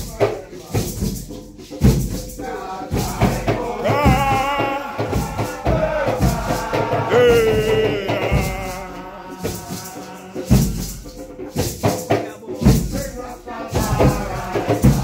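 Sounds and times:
hand drums beating: 0.0 - 15.0
group of voices chanting: 2.4 - 10.9, 13.1 - 15.0.

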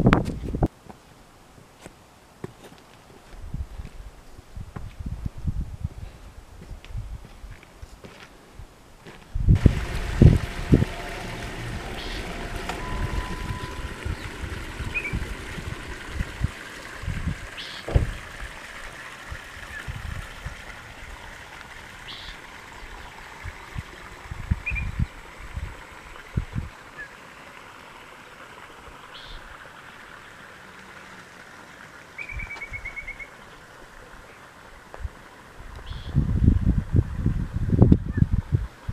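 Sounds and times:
wind buffeting microphone: 0.0 - 0.7, 3.4 - 7.6, 9.3 - 21.2, 23.4 - 26.8, 35.0 - 38.9
background hiss: 0.6 - 19.8.

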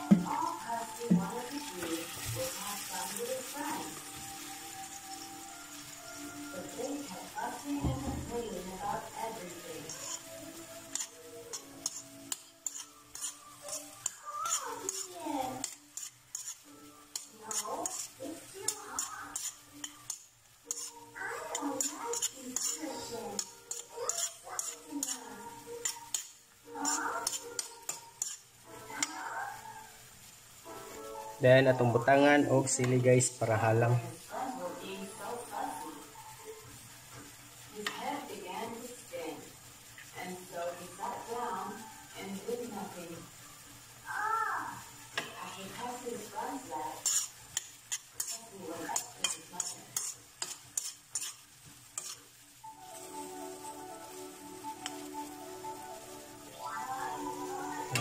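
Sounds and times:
faint frying sizzle: 0.0 - 58.0
metal spoon scraping a wok: 9.0 - 29.3, 45.1 - 52.4.

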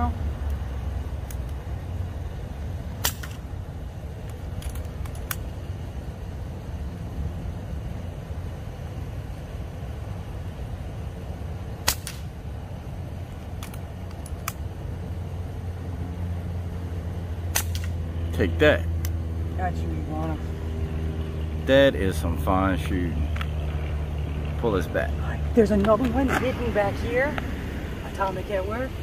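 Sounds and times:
distant road traffic rumble: 0.0 - 29.0
loud snap: 3.0 - 3.4, 11.8 - 12.4, 17.5 - 18.0
sharp clicks: 4.2 - 5.5, 13.5 - 14.6.

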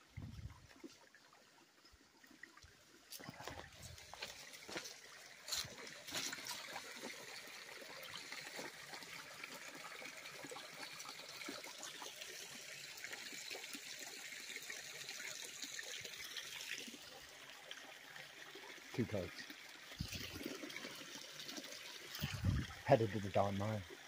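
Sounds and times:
creek trickling: 0.0 - 24.0.

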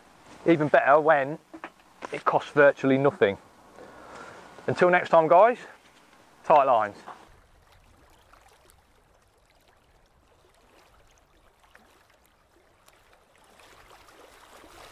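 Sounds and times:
river water lapping: 5.6 - 14.9.

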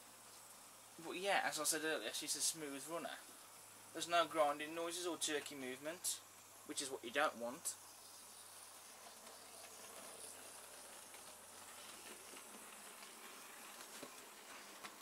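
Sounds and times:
model train motor whirring: 7.8 - 15.0.

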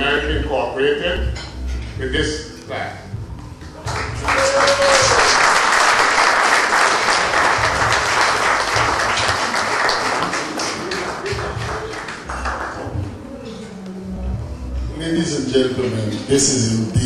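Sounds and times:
audience applauding: 3.8 - 13.2.

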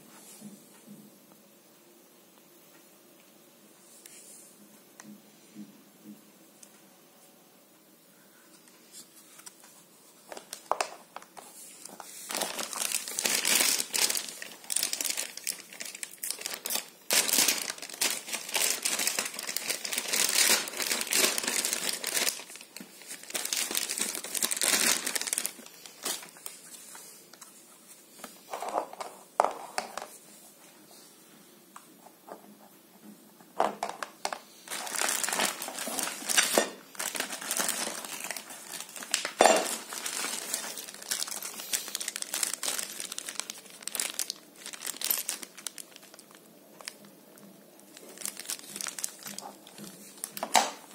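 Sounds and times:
plastic wrapping crinkling: 8.7 - 30.2, 33.6 - 50.9.

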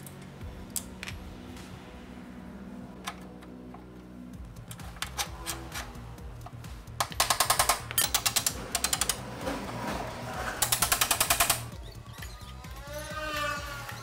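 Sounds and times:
ratchet wrench clicking: 4.6 - 9.2, 10.6 - 14.0.

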